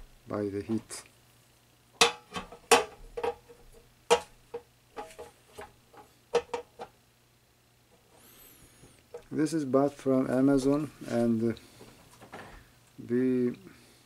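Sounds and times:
metal grate clinking on stove: 2.0s - 3.5s, 4.1s - 5.3s, 5.9s - 6.9s.

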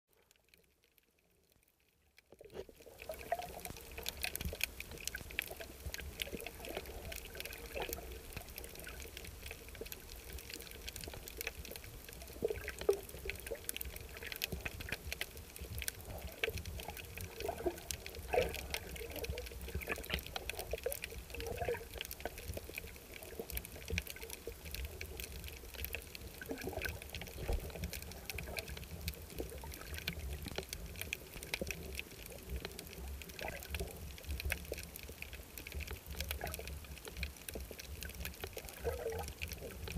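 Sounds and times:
faint clicks and crackles: 0.1s - 39.9s
water gurgles: 0.1s - 39.9s
underwater water rumble: 2.2s - 39.9s.

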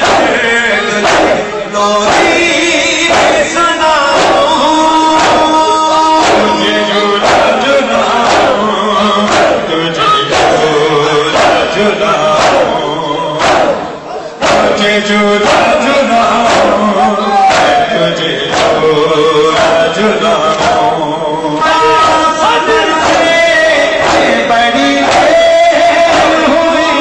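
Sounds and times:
man singing a lament: 0.0s - 27.0s
men's voices singing: 0.0s - 27.0s
rhythmic chest-beating: 0.0s - 27.0s.

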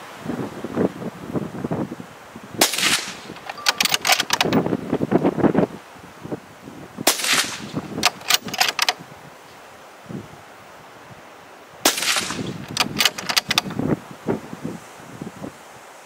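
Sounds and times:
rifle bolt clacking: 2.6s - 4.6s, 7.1s - 9.0s, 11.9s - 13.8s
rifle shots: 2.6s - 4.6s, 7.1s - 9.0s, 11.8s - 13.7s.

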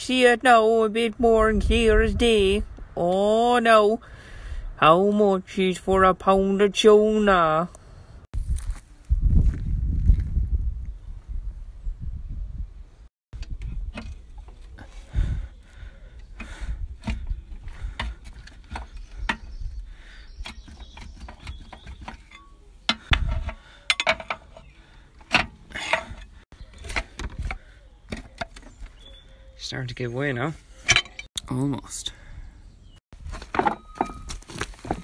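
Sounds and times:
low rumbling handling noise: 20.4s - 29.1s
hand tools clinking on metal: 22.1s - 24.6s, 25.3s - 26.3s, 30.8s - 31.3s.

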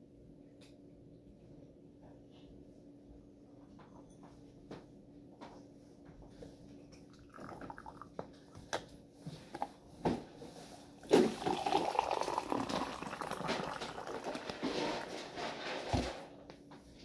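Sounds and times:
tea dripping from infuser: 7.0s - 8.4s, 11.0s - 14.7s
tea pouring into a mug: 7.0s - 8.4s, 11.0s - 15.2s.

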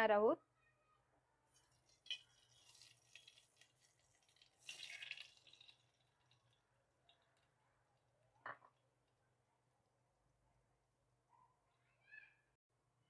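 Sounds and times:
soft splash of lump into pot: 1.6s - 6.5s.

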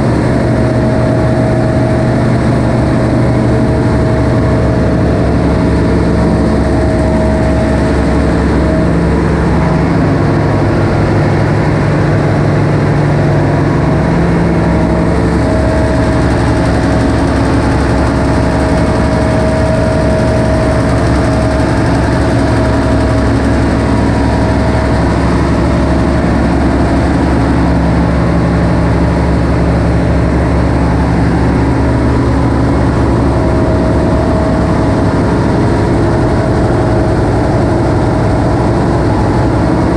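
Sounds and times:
engine room drone: 0.0s - 39.9s
humming tones: 0.0s - 39.9s.

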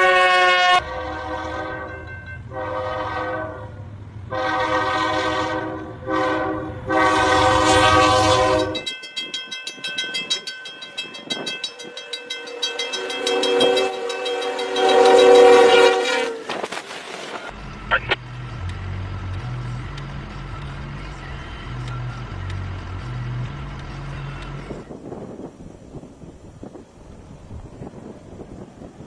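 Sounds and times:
locomotive air horn blasts: 0.0s - 8.9s, 12.6s - 16.5s
train rumble: 0.0s - 29.0s
crossing bell ringing: 1.7s - 2.7s, 7.9s - 16.4s.

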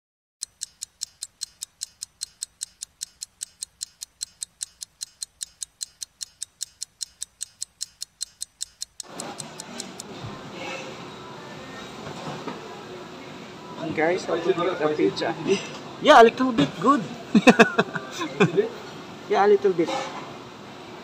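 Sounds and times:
clock-like ticking: 0.4s - 10.1s.

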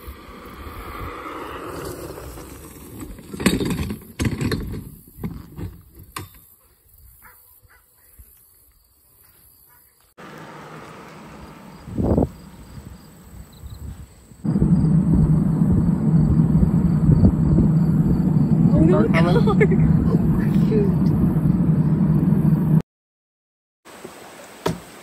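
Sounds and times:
wind on microphone: 0.0s - 2.5s, 11.8s - 22.8s
cart rolling on asphalt: 0.0s - 6.1s, 10.2s - 13.7s, 14.3s - 22.8s.

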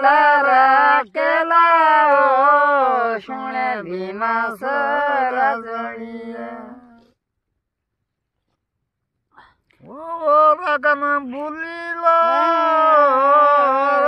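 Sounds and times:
woman singing unaccompanied: 0.0s - 7.0s.

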